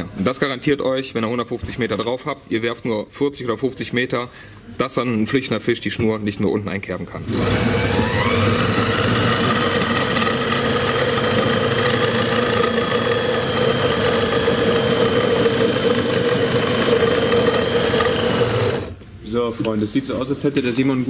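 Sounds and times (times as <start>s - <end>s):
line-spooling machine humming: 7.3s - 18.9s.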